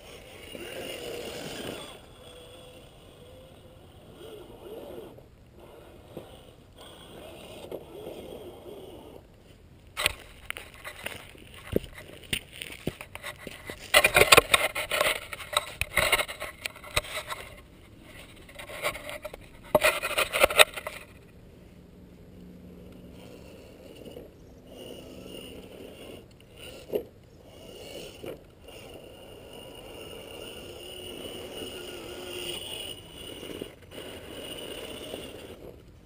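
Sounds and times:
irregular scraping and rubbing: 0.0s - 21.3s, 23.0s - 36.0s
toy car motor and gears whining: 0.0s - 21.3s, 22.7s - 36.0s.

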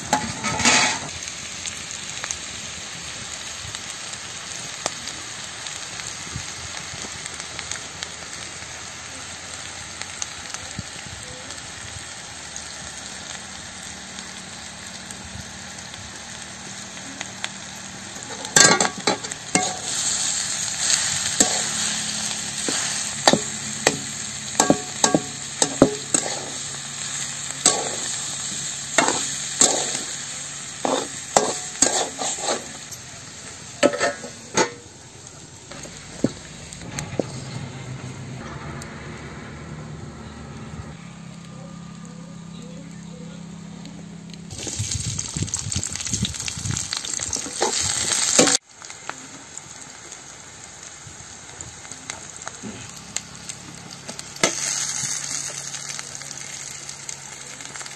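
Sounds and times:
steel spatula scraping a pan: 0.0s - 1.1s, 18.6s - 24.0s, 24.6s - 26.7s, 29.0s - 30.1s, 30.8s - 33.0s, 33.8s - 34.8s
potatoes sizzling in a pan: 0.0s - 39.0s, 40.9s - 57.9s.

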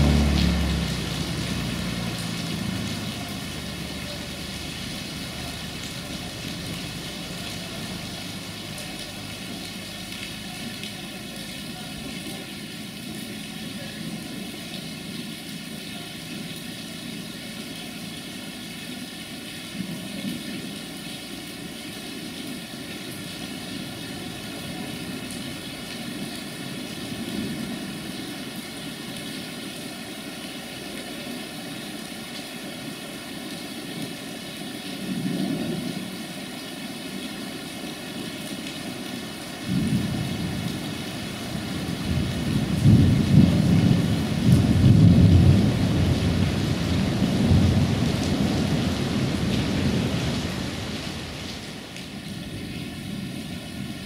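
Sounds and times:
diesel railbus engine droning: 0.0s - 10.6s
heavy rain hiss: 0.0s - 54.0s.

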